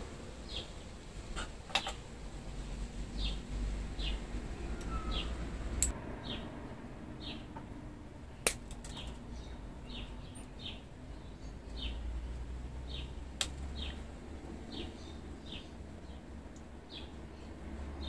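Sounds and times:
bird chirping: 3.2 - 5.5, 7.2 - 7.5, 8.8 - 16.3
wire cutters snipping wire: 8.4 - 9.1.

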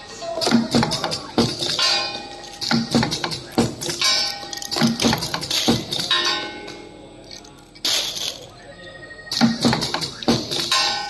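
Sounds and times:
metallic machine knocks and clinks: 1.4 - 6.3.

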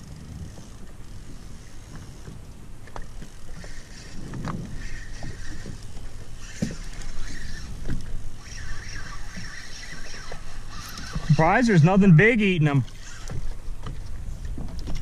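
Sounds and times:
waves lapping against boat hull: 0.0 - 15.0.

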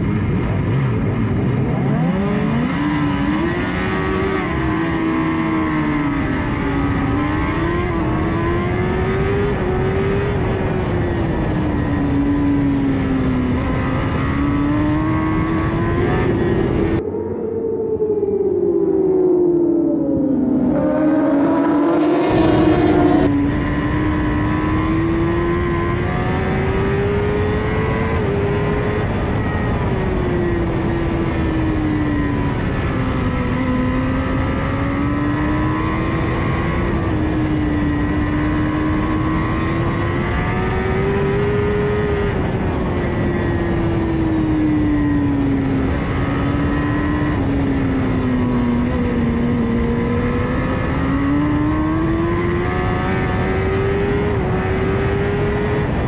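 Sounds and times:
motorbike engine at racing speed: 0.0 - 56.0
racing motorbikes accelerating: 0.2 - 56.0
loud wind rush: 5.8 - 34.1.

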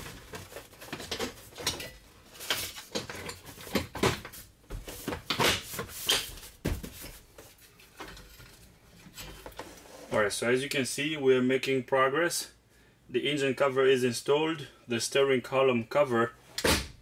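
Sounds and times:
plastic rubbing and rustling: 0.0 - 10.2.

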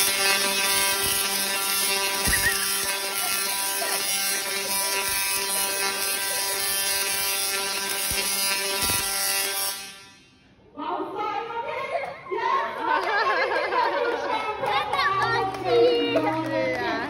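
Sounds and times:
tesla coil electric buzz: 0.0 - 10.7.

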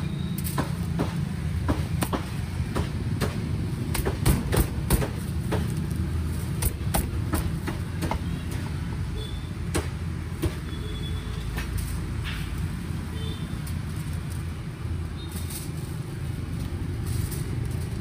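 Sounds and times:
cleaver chopping on wooden block: 6.6 - 8.6.

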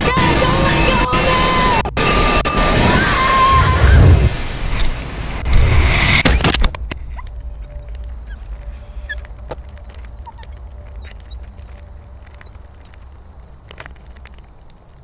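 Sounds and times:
low rumble: 2.1 - 13.5.

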